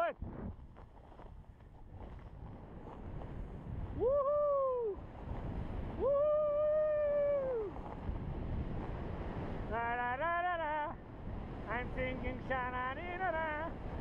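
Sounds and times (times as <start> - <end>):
wind: 0.0 - 14.0
sliding over snow: 0.2 - 3.8, 5.2 - 9.7
person whooping: 4.0 - 5.0, 6.0 - 7.8.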